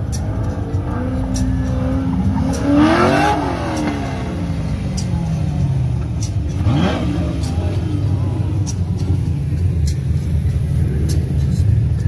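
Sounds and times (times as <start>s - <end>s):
car engine accelerating past: 0.4s - 4.8s, 6.0s - 8.8s.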